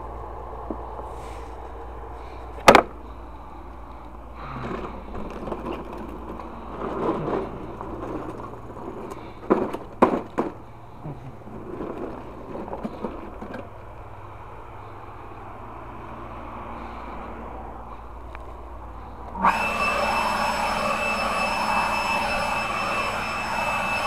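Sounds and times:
rustling and knocking of handled objects: 0:02.3 - 0:14.1.

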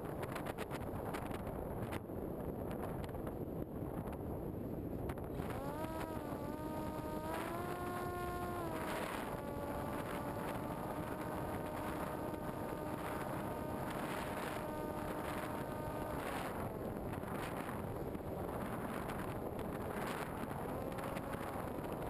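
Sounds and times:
wind rush: 0:00.0 - 0:22.0
model airplane motor whine: 0:05.3 - 0:22.0.

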